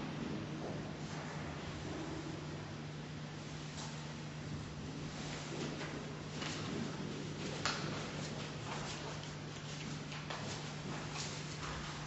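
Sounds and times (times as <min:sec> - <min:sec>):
steady low hum: 0:00.0 - 0:12.0
soft taps and rustles: 0:05.1 - 0:12.0.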